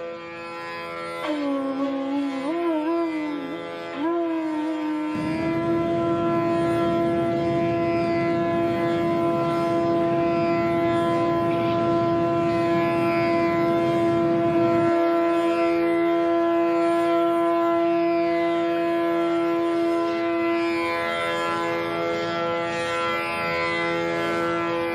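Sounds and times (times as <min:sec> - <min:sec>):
classical music drone: 0:00.0 - 0:24.9
airliner cabin rumble: 0:05.1 - 0:15.3.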